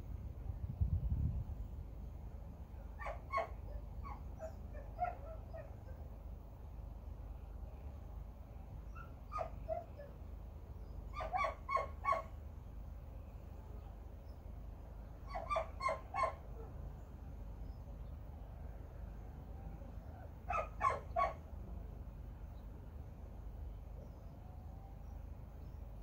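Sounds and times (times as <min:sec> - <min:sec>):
low steady hum: 0:00.0 - 0:11.2, 0:12.3 - 0:15.3, 0:16.3 - 0:26.0
dog barking: 0:03.0 - 0:06.0, 0:09.0 - 0:10.2, 0:11.2 - 0:12.3, 0:15.3 - 0:16.7, 0:20.5 - 0:21.4.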